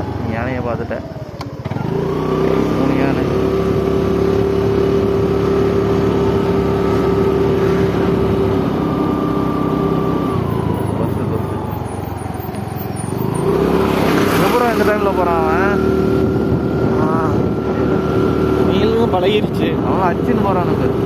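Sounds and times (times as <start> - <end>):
vehicle engine running: 0.0 - 21.0.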